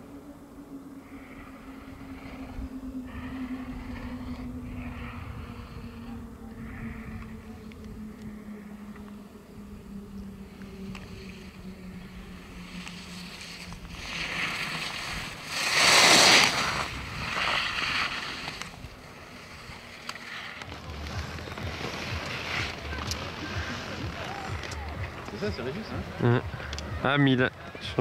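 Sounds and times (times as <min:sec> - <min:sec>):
low steady hum: 0:00.0 - 0:28.0
skis scraping on snow: 0:10.6 - 0:26.7.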